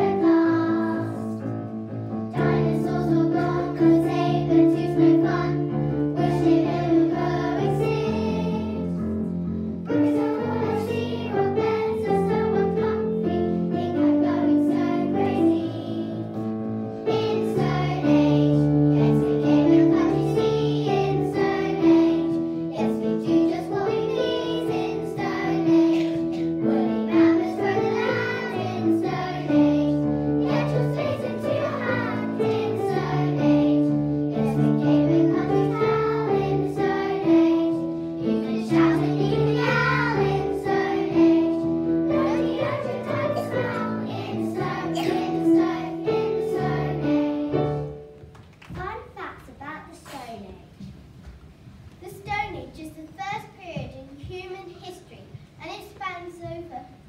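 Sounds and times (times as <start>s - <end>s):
girls singing in unison: 0.0s - 1.5s, 2.3s - 9.0s, 9.9s - 16.4s, 17.1s - 47.8s
instrumental accompaniment: 0.0s - 48.9s.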